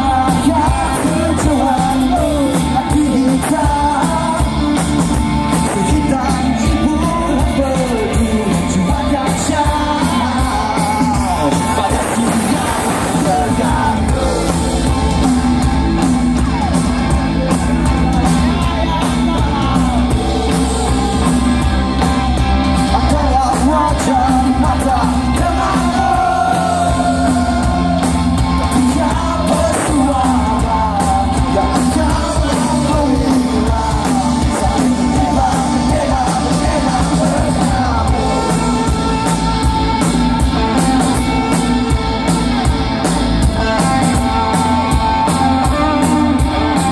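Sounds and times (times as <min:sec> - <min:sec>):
person singing: 0:00.0 - 0:46.9
rock band playing live: 0:00.0 - 0:46.9.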